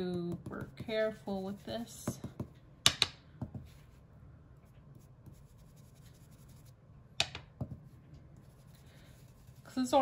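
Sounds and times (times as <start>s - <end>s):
faint rubbing on paper: 4.9s - 6.8s, 8.4s - 10.0s.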